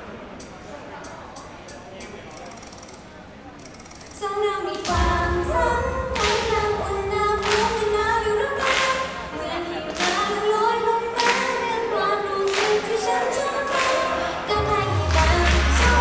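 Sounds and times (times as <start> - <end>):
group singing pop song: 4.6 - 16.0
backing track with strong beat: 4.8 - 11.6, 13.7 - 16.0.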